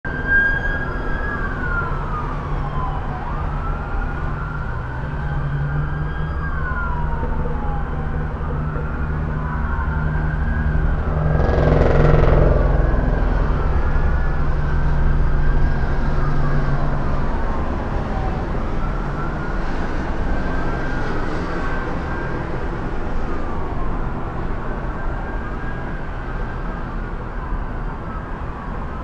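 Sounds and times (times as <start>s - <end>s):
police sirens wailing: 0.1s - 29.0s
vehicle engines rumbling: 0.1s - 29.0s
rush of noise: 9.0s - 25.2s.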